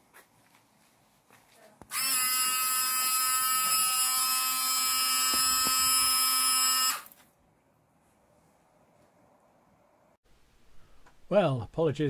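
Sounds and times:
washer pump motor whine: 1.9s - 7.1s.

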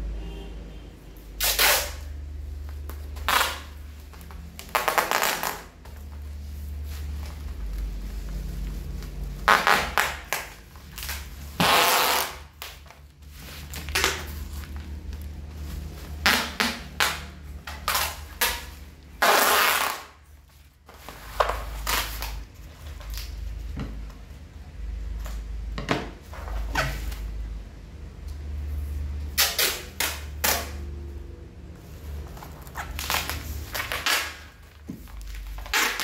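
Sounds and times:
packing tape pulled off roll: 1.4s - 2.1s, 2.9s - 6.0s, 9.4s - 15.3s, 16.2s - 20.2s, 21.0s - 23.4s, 29.3s - 30.8s, 32.4s - 36.0s.

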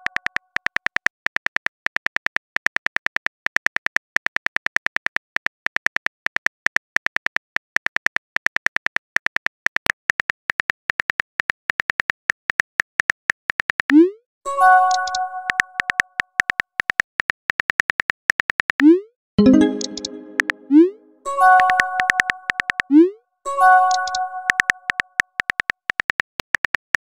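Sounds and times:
keyboard typing clicks: 14.8s - 16.6s, 18.8s - 25.7s.

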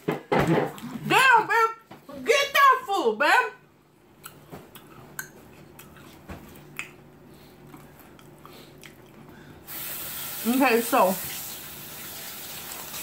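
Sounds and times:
faint steady hum: 0.1s - 13.0s
wet chewing mouth clicks: 4.2s - 9.4s.

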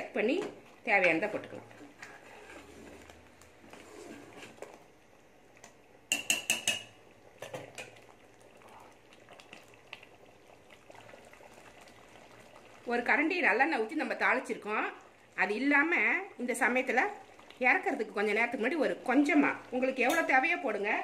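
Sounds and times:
gravy bubbling faintly: 0.0s - 6.1s, 6.9s - 21.0s
ladle scraping metal pot: 1.0s - 4.8s.

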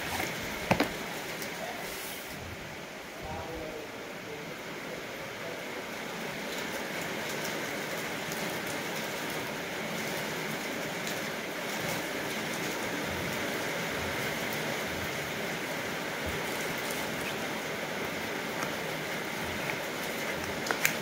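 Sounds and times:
paper wrapping crinkling: 18.6s - 21.0s.

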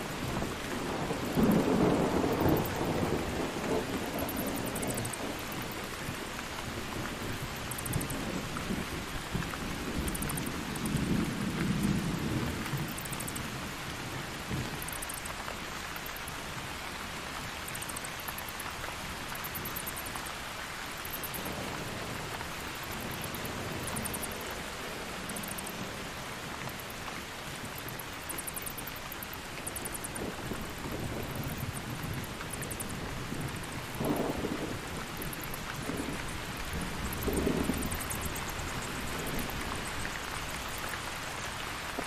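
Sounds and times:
steady rain: 0.0s - 42.0s
thunder rumble: 0.2s - 13.7s, 29.8s - 40.8s.

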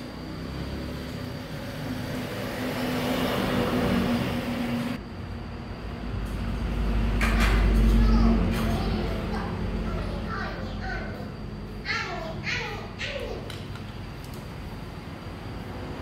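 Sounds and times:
vehicle passing: 0.0s - 5.0s.

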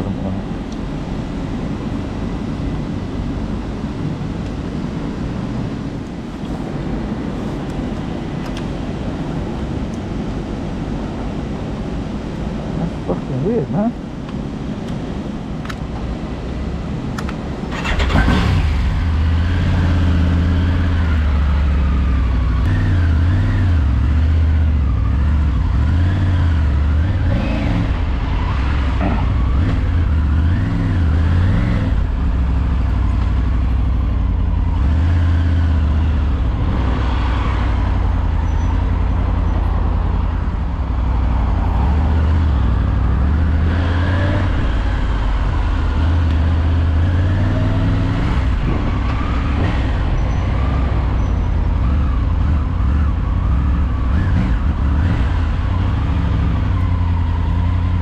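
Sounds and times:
motorcycle engine riding: 17.3s - 58.0s.

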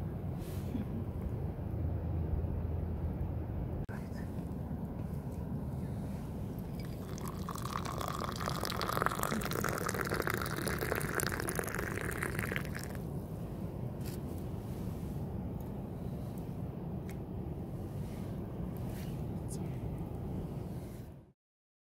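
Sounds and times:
tea pouring into a mug: 6.5s - 13.0s.

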